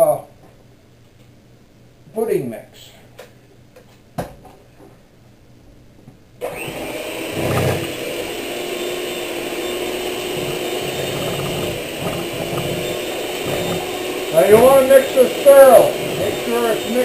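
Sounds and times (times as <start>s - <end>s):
electric hand mixer running: 6.4s - 17.0s.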